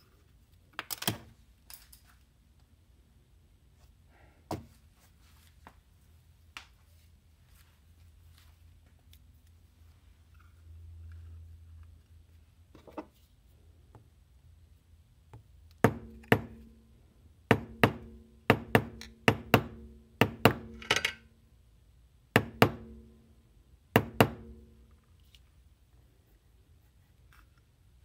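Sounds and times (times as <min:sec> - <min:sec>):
hammer tapping metal punch: 0:15.8 - 0:16.8, 0:17.5 - 0:21.2, 0:22.4 - 0:23.1.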